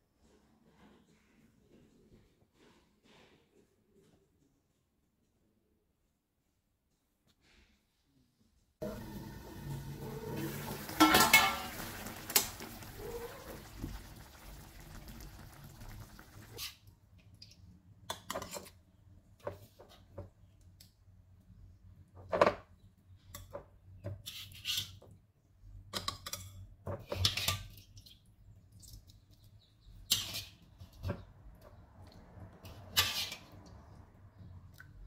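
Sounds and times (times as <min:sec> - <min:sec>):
utensils scraping a wok and bowl: 0:09.6 - 0:13.5, 0:30.0 - 0:31.1, 0:32.6 - 0:33.8.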